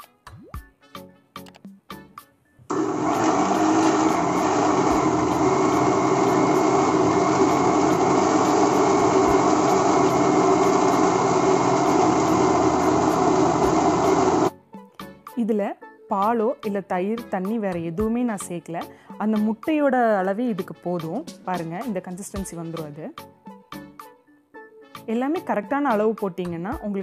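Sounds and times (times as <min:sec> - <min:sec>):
mixer grinder motor running: 0:02.7 - 0:14.5.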